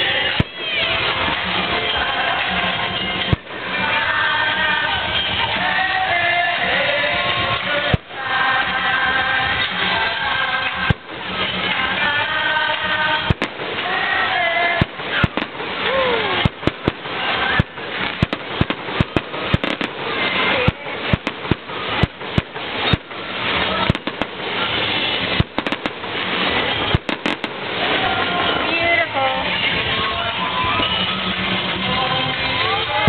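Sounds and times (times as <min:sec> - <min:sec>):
fireworks bursting: 0:00.0 - 0:33.0.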